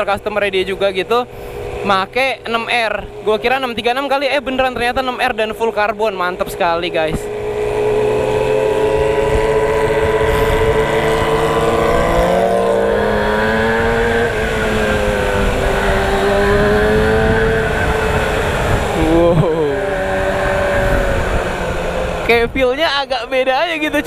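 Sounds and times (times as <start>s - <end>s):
motorcycle engine running: 0.0s - 24.0s
wind rushing: 7.1s - 23.2s.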